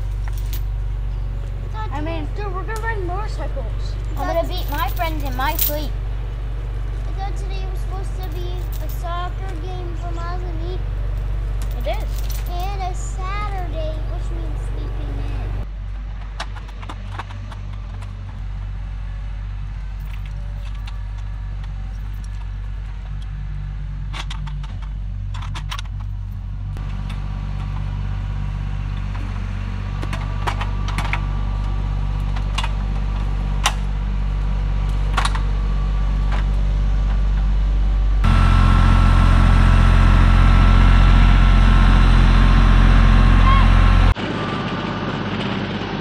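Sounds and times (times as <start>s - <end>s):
chain clinking: 0.0s - 0.8s, 4.2s - 5.9s, 8.1s - 9.2s, 11.2s - 13.0s
diesel engine idling: 0.0s - 16.3s, 26.0s - 45.9s.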